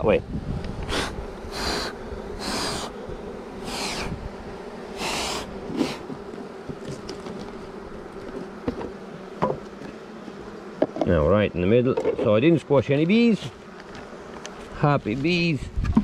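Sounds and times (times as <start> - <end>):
bees humming: 0.0 - 15.8
puffs of air blown: 0.8 - 3.0, 3.6 - 4.2, 4.9 - 6.0.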